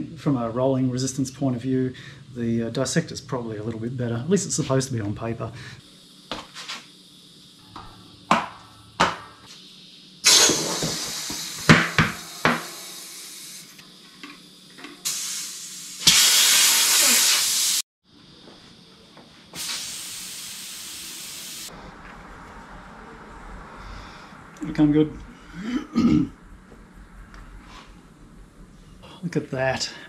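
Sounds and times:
compressed air hissing into tyre: 9.8s - 13.8s, 15.0s - 17.8s, 19.6s - 21.8s.

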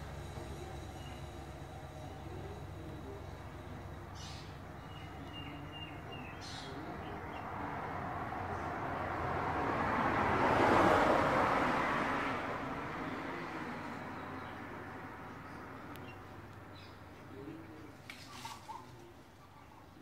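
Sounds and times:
vehicle passing: 0.0s - 19.1s.

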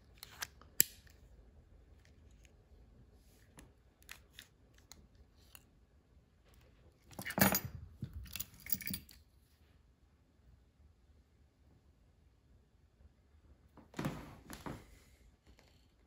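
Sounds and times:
keys jingling on table: 7.1s - 9.2s.

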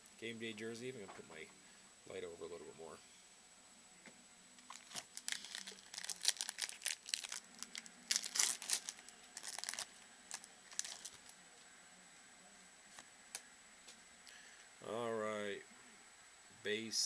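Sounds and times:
wrapper tearing and crackling: 4.7s - 11.3s.

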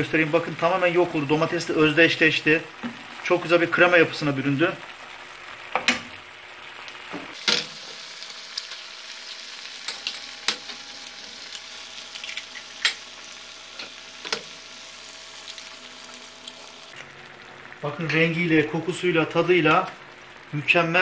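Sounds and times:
food sizzling in frying pan: 0.0s - 21.0s
eggs cracking: 12.1s - 13.1s, 13.8s - 17.0s.

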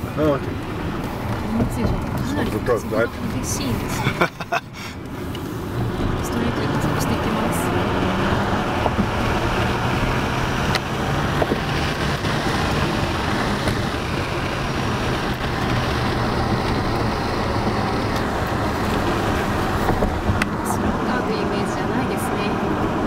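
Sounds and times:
passenger talking: 0.0s - 5.2s, 6.0s - 9.2s, 17.9s - 22.7s
tyre and road noise: 0.0s - 23.0s.

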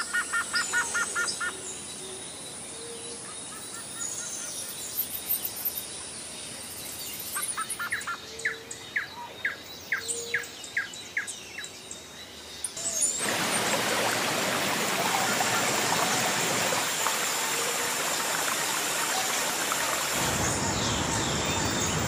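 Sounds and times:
rushing river water: 13.0s - 22.0s.

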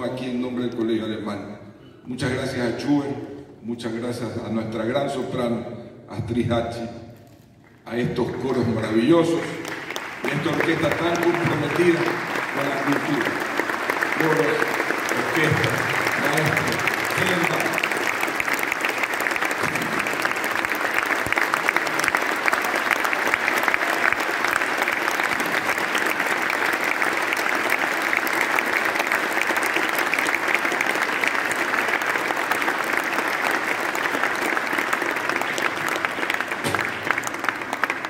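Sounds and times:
audience applauding: 8.2s - 38.0s.

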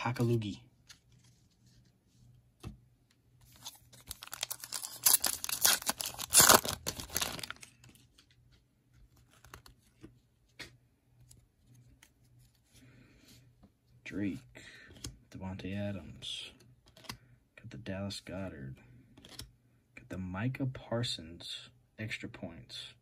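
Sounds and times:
cards being handled: 3.4s - 12.6s, 16.8s - 17.2s, 19.2s - 19.5s
foil wrapper tearing and crinkling: 4.0s - 7.8s.

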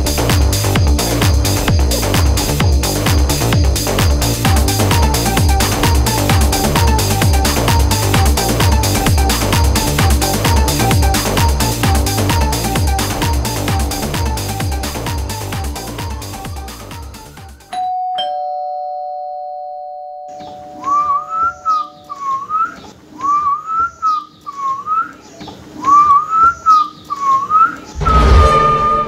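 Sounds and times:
beat-driven background music: 0.0s - 17.7s
two-tone doorbell chime: 17.7s - 22.2s
man whistling a tune: 20.8s - 25.1s, 25.8s - 27.8s.

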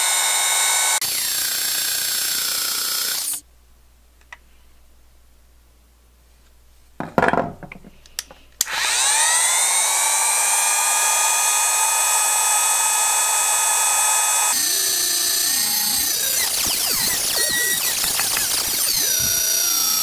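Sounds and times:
drill press motor whining: 0.0s - 3.4s, 8.6s - 20.0s.

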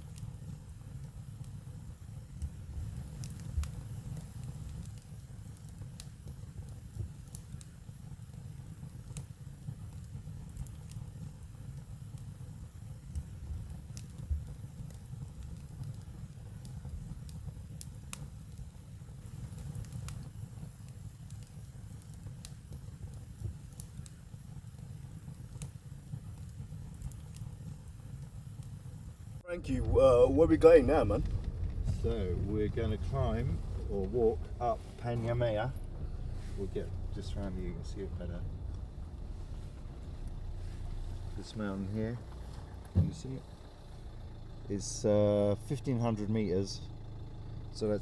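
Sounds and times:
wood fire crackling: 0.0s - 48.0s
low rumble: 29.2s - 48.0s.

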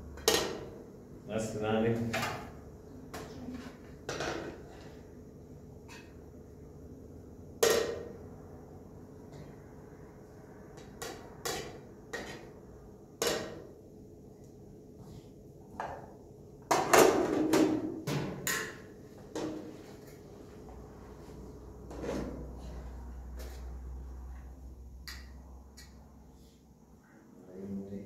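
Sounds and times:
faint low hum: 19.7s - 28.0s.

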